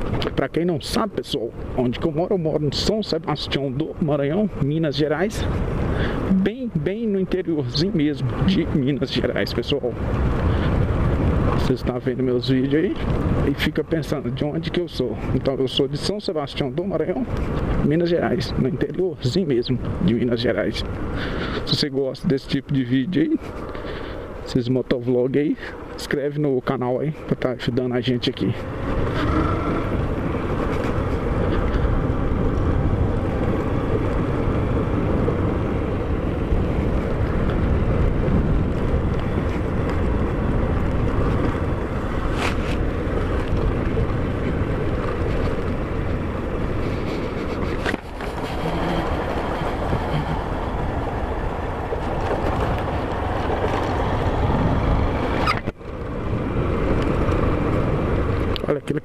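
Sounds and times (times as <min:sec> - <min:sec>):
tyre noise on dirt: 0:28.6 - 0:58.5
wind rushing: 0:28.6 - 0:58.5.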